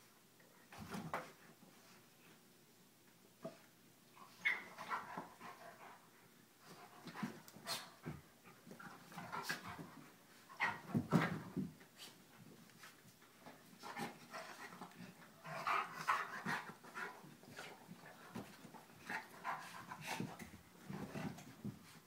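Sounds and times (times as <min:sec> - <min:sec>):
dog panting: 0:13.8 - 0:22.0.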